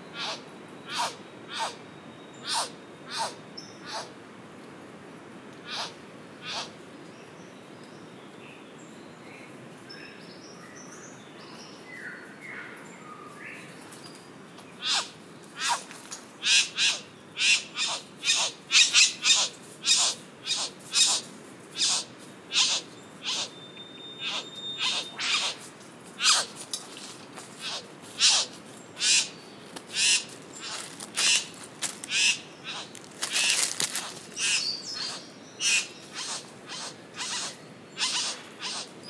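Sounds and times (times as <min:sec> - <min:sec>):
sharp bird calls: 0:00.1 - 0:01.8, 0:02.4 - 0:04.1, 0:05.7 - 0:06.7, 0:14.8 - 0:15.8, 0:16.4 - 0:25.6, 0:26.2 - 0:26.5, 0:27.6 - 0:39.0
faint bird chirps: 0:22.6 - 0:25.6.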